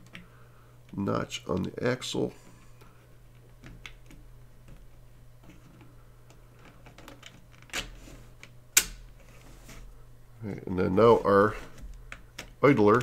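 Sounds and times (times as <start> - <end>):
plastic parts clicking and tapping: 3.3 - 9.0.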